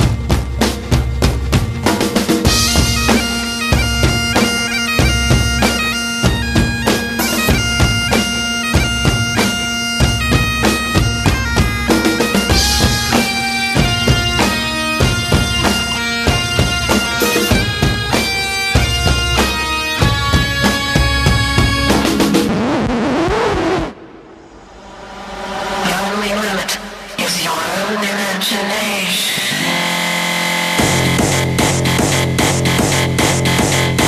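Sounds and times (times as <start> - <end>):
drum beat: 0.0 - 24.0, 30.8 - 34.0
bagpipes playing over drone: 0.0 - 24.1.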